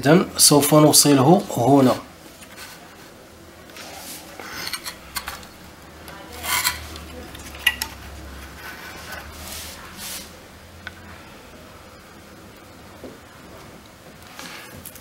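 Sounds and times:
hand tools clicking and scraping: 4.4s - 5.6s, 6.3s - 9.3s.

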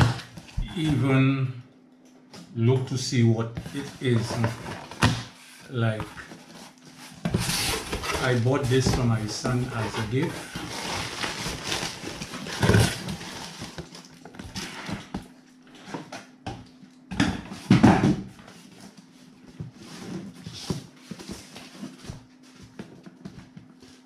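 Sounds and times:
box scraping: 3.6s - 13.9s.

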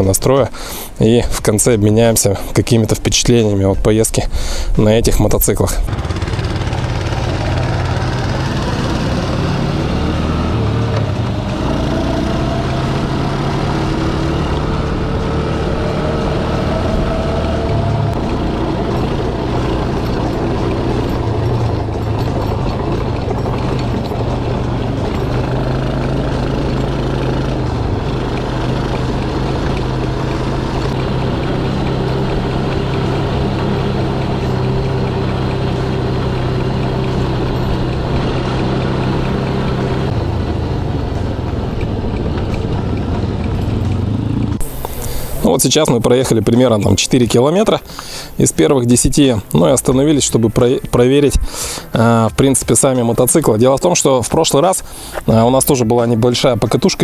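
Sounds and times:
motorcycle engine running: 5.8s - 50.5s.

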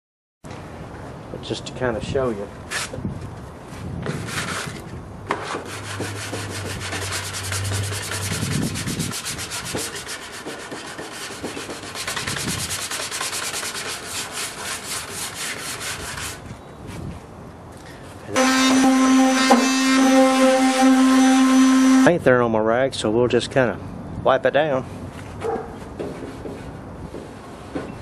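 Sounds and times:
sandpaper rubbing on metal: 5.4s - 16.5s.

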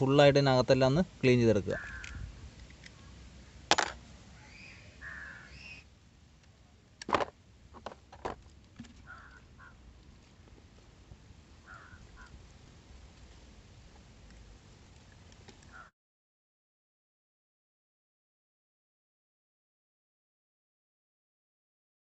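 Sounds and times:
crows cawing: 1.7s - 2.2s, 5.0s - 5.8s, 9.0s - 9.8s, 11.6s - 12.4s, 15.7s - 15.9s.

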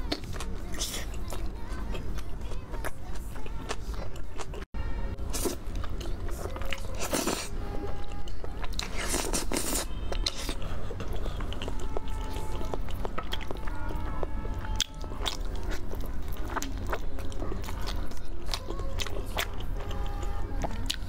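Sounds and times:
crunchy chewing: 8.1s - 21.0s.

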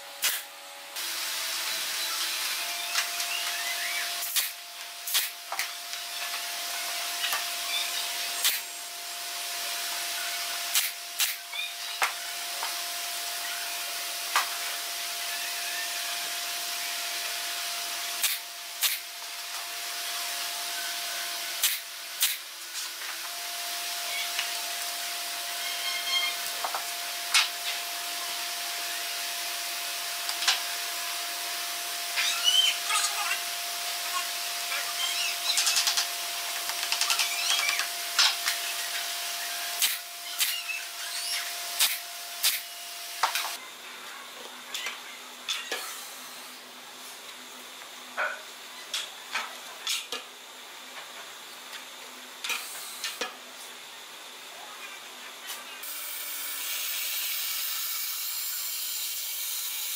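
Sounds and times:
nail gun shots: 10.7s - 11.4s, 18.2s - 19.0s, 21.6s - 22.4s, 41.8s - 42.7s.

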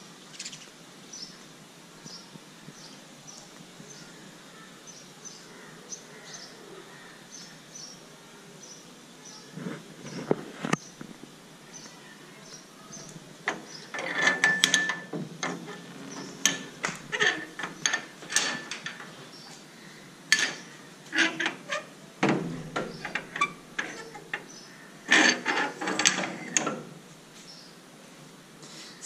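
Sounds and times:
metal gate clanking and rattling: 13.5s - 19.6s, 20.3s - 27.0s
gate squeal: 13.8s - 19.1s, 20.3s - 24.5s, 25.1s - 26.8s.

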